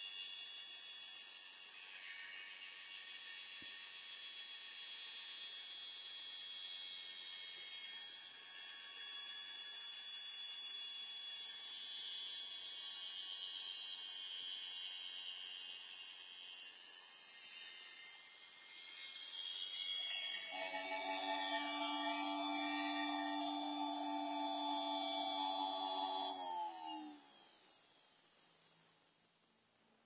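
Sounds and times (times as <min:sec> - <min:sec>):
blender motor whining: 0:20.3 - 0:27.4.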